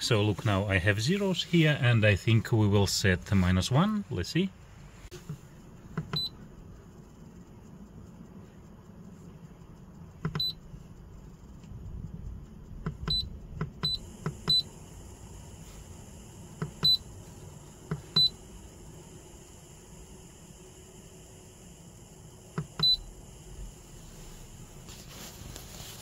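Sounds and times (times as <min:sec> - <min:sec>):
short high key beeps: 0:10.4 - 0:10.6, 0:13.0 - 0:14.7, 0:18.1 - 0:18.4, 0:22.8 - 0:23.1.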